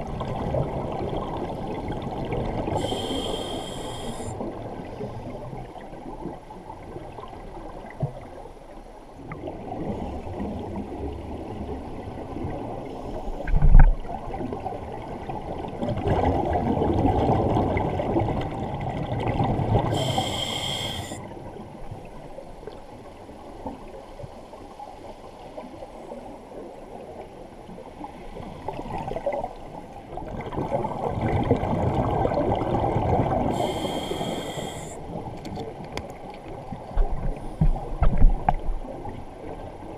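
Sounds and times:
regulator inhalation hiss: 2.8 - 4.4, 19.9 - 21.2, 33.5 - 35.0.

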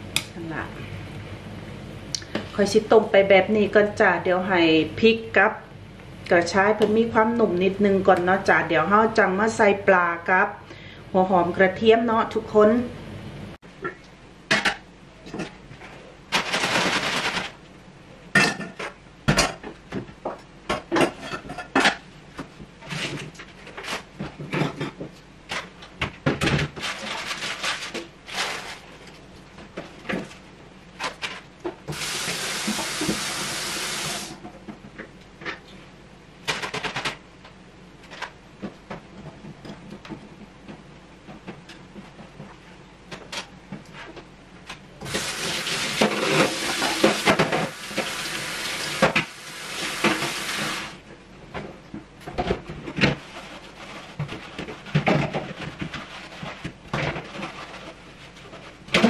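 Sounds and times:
pots and utensils clattering: 20.8 - 22.0, 45.1 - 48.1
kitchen tap running: 31.9 - 34.4, 45.0 - 51.0.

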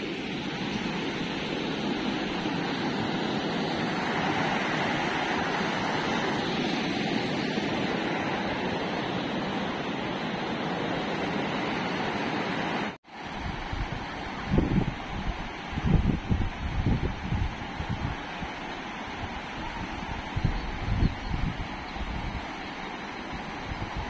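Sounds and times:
river rapids rushing: 0.0 - 15.8.

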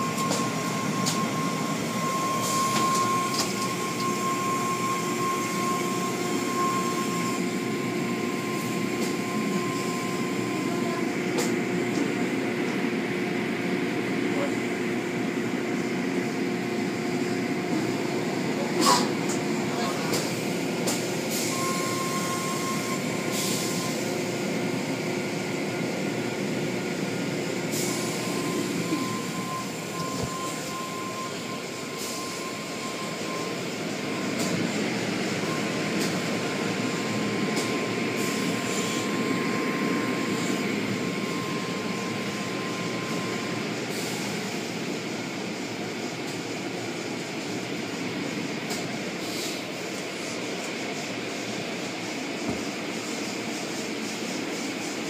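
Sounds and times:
thin steady whine: 0.0 - 55.0.

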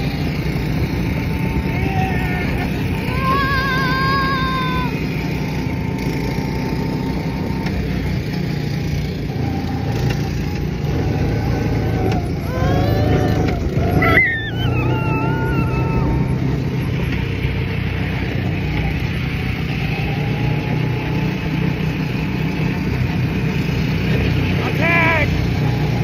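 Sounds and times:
car engine and road noise: 0.0 - 26.0
child squealing and yelling: 1.7 - 5.1, 12.4 - 16.9.

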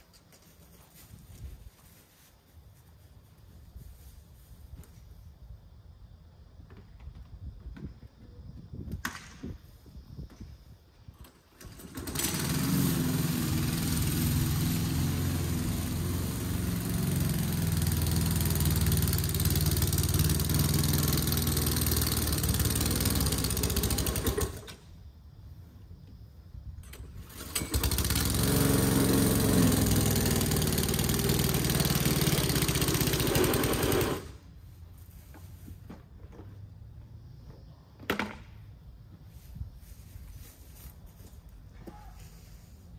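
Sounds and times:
lawn mower engine running: 11.2 - 24.8, 26.8 - 35.4.

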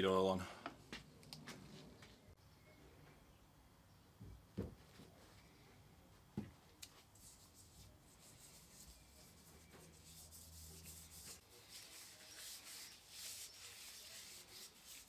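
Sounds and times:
gloved hands rubbing wood: 7.0 - 15.0.

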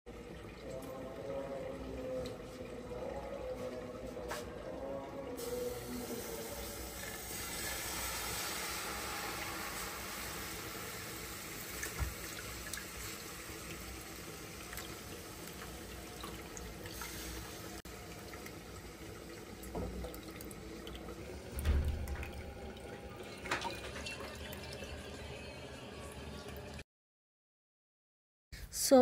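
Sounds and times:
thick liquid sloshing and splashing: 21.5 - 24.6.

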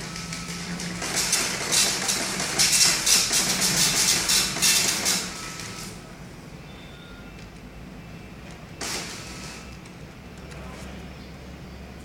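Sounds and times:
dot-matrix printer printing: 0.0 - 6.1, 8.4 - 9.9.

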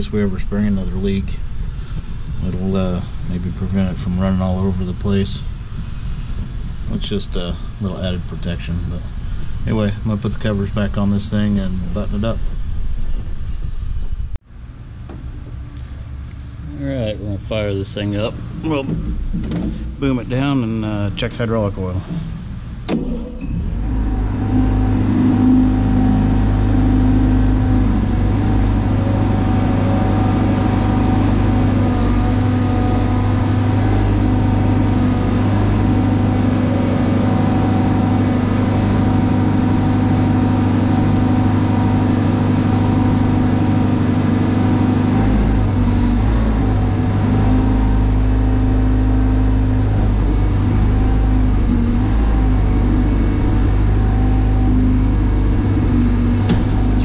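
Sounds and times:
crane engine running: 0.0 - 57.0
hydraulic levers working: 18.4 - 20.1, 22.0 - 57.0.

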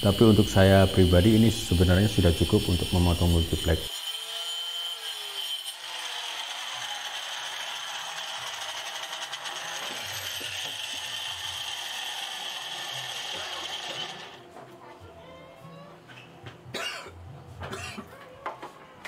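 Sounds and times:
circular saw whining: 0.0 - 14.4.

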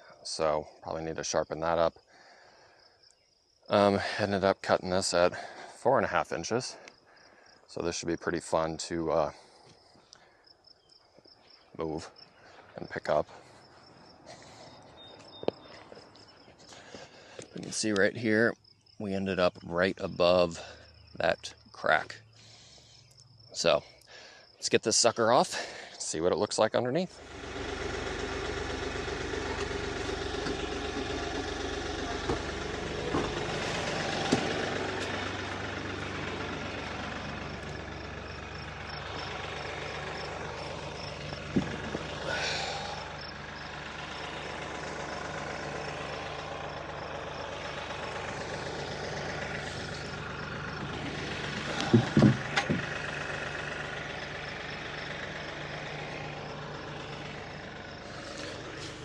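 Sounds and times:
diesel tractor engine idling: 0.0 - 59.0
wooden slab knocking: 51.8 - 52.9.

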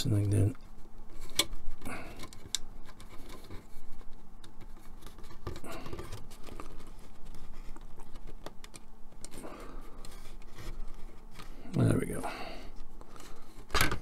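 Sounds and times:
scratchy plastic rubbing: 0.6 - 11.7.

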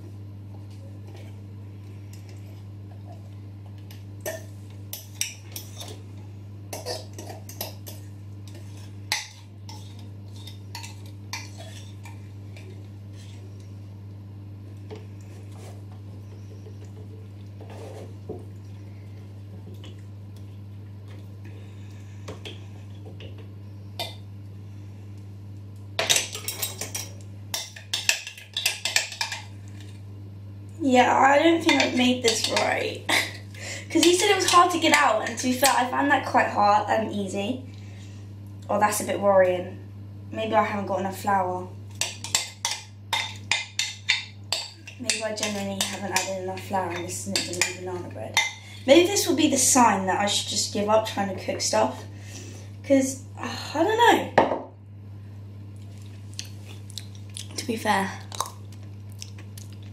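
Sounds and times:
steady low hum: 0.0 - 59.9
cutlery scraping and clinking: 6.8 - 12.0.

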